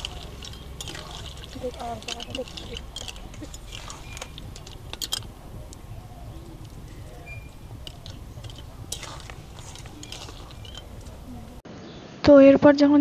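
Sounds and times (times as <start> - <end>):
spatula scraping metal pan: 0.0 - 5.4, 6.6 - 11.6
low steady rumble: 0.0 - 11.6.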